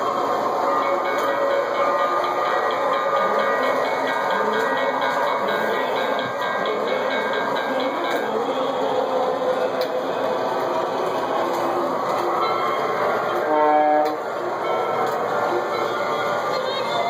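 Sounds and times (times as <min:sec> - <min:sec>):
model train rolling rumble: 0:00.0 - 0:17.0
train horn blast: 0:13.4 - 0:14.3.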